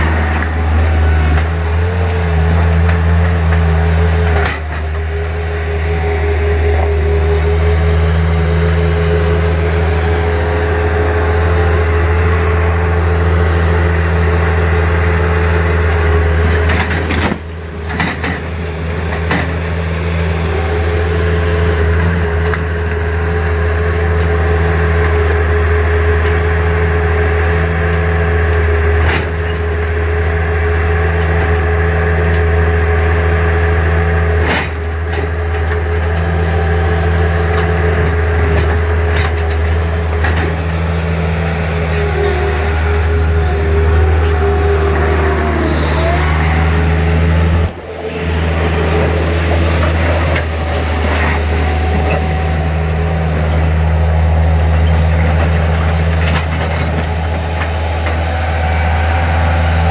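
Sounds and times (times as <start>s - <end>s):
loader engine running: 0.0s - 59.9s
steady whine: 34.4s - 59.9s.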